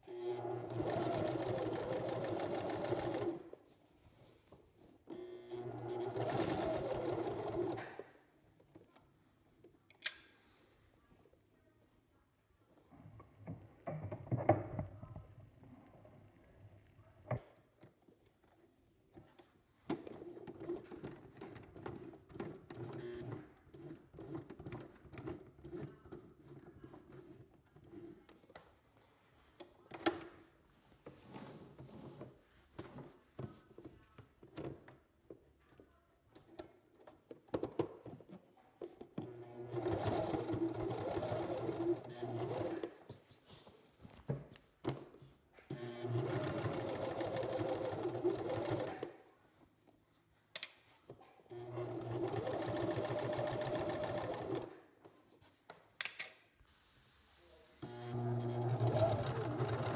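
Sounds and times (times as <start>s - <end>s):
sewing machine stitching: 0.1s - 3.6s, 5.2s - 8.0s, 39.2s - 43.0s, 45.7s - 49.2s, 51.5s - 54.8s, 57.8s - 59.9s.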